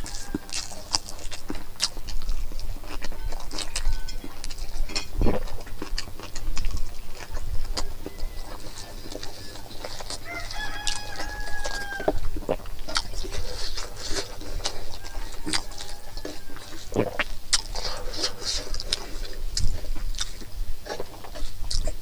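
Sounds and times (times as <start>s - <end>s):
rooster crowing: 0.0s - 1.0s, 3.2s - 4.3s, 7.6s - 12.3s, 14.6s - 17.0s
chewing clicks: 0.0s - 22.0s.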